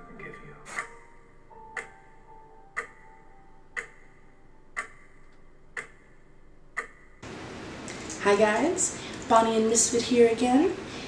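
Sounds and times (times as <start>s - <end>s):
clock ticking: 0.0s - 7.2s.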